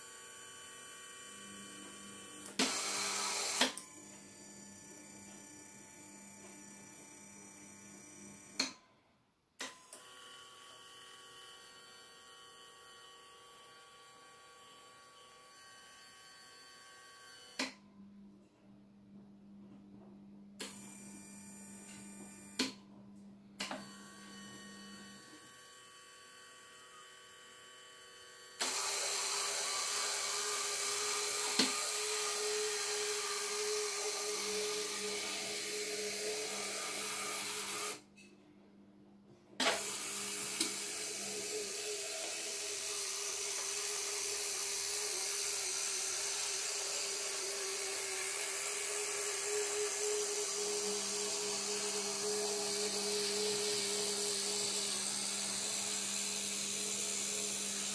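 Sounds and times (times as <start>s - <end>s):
faint motor hum: 0.0s - 8.8s, 17.9s - 57.9s
high motor whine: 28.6s - 38.0s, 39.6s - 57.9s.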